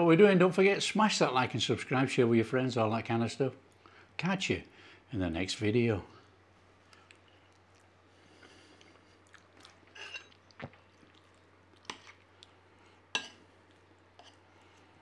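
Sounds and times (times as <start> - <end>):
low steady hum: 0.0 - 15.0
faint chewing: 6.8 - 15.0
knife and fork clinking on plate: 10.0 - 10.4.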